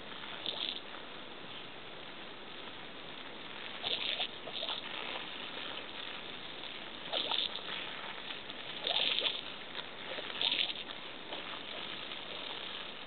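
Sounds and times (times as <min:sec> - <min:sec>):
water spraying from hose: 0:00.0 - 0:01.0, 0:02.6 - 0:13.0
splashing bursts: 0:03.6 - 0:13.0.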